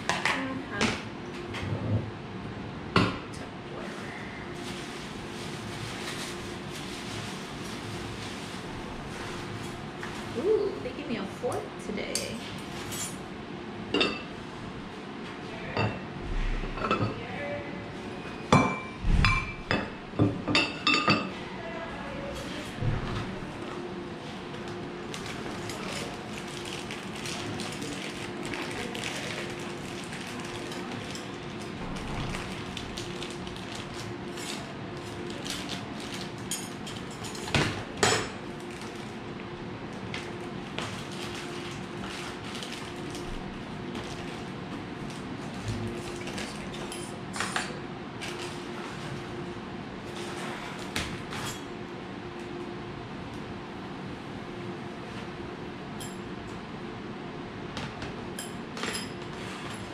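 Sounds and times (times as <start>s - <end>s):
plastic bag crinkling: 25.1s - 37.1s, 38.6s - 39.2s, 40.2s - 46.9s.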